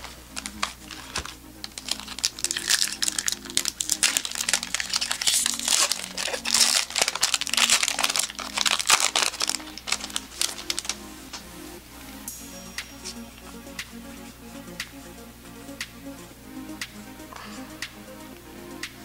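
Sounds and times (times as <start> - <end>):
foil wrapper crinkling: 0.0 - 11.0
soft background music: 0.0 - 19.0.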